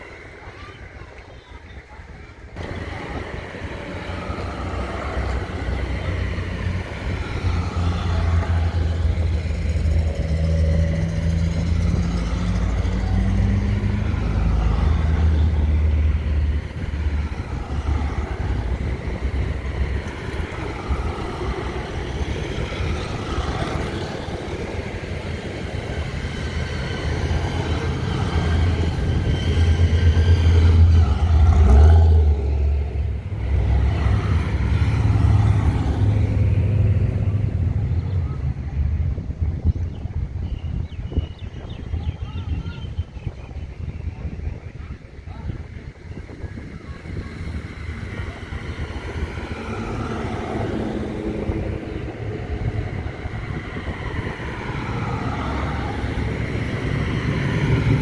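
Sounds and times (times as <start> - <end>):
cars driving past: 2.6 - 40.3, 46.0 - 58.0.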